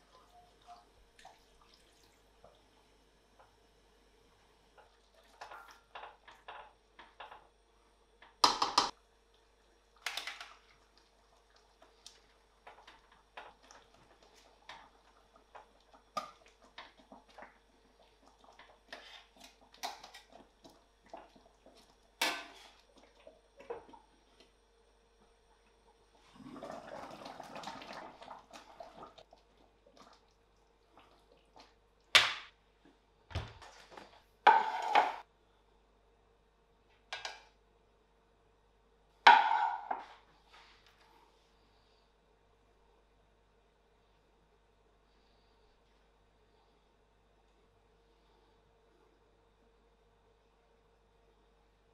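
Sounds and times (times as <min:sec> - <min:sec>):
faint hum: 0:00.0 - 0:51.9
wooden spoon scraping a pan: 0:33.6 - 0:35.2.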